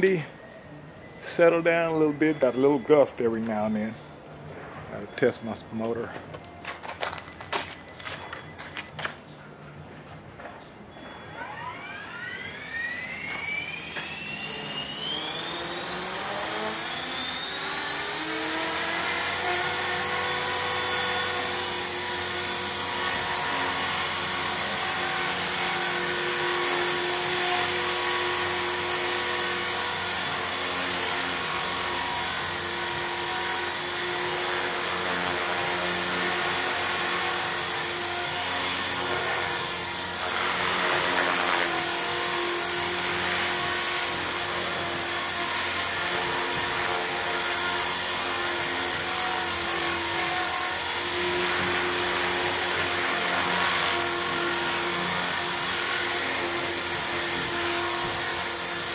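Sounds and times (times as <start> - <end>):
rc helicopter motor and rotor whine: 10.9 - 58.9.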